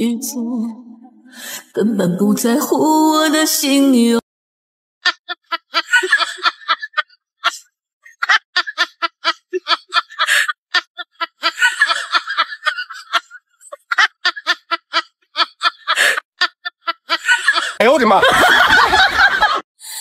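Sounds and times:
snickering laughter: 5.0 - 19.6.

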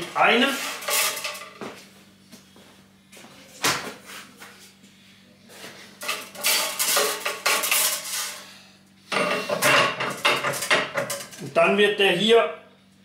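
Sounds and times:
copper tubing clinking and clattering: 6.0 - 8.4, 9.3 - 11.4.

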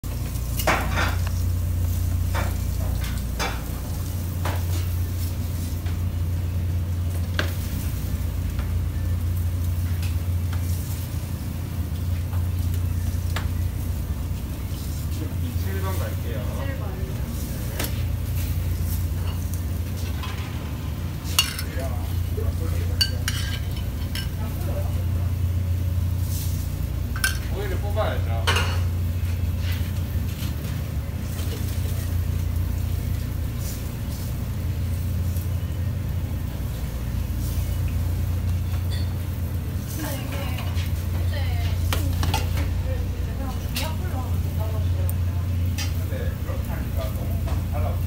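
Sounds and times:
low hum of kitchen equipment: 0.0 - 48.0
tongs and utensils clinking on steel: 0.1 - 6.0, 14.7 - 25.4, 26.3 - 34.3, 37.4 - 48.0.

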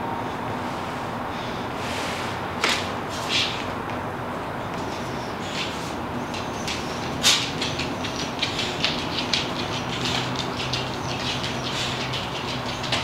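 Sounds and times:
dog claws clicking on hardwood floor: 4.7 - 13.0.

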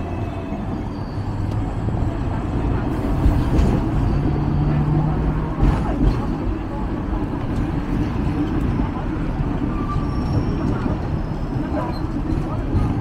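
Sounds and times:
tram rumbling: 0.0 - 13.0.

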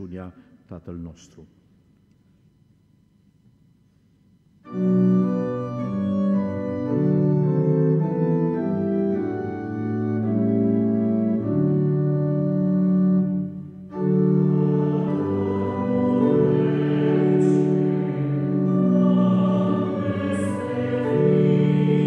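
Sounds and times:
church organ playing a hymn: 4.6 - 22.0.

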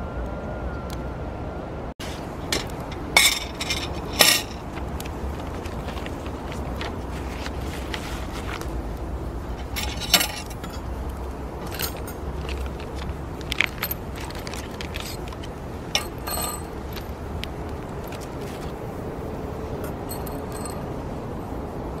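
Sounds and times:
metal grill rack clinking: 2.4 - 4.7, 9.6 - 11.0, 11.6 - 12.9, 13.5 - 17.2, 19.8 - 20.8.

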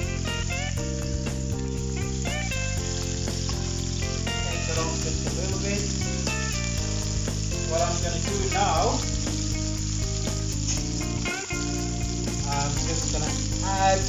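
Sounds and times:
background music: 0.0 - 14.0
steak sizzling in a frying pan: 0.0 - 14.0.

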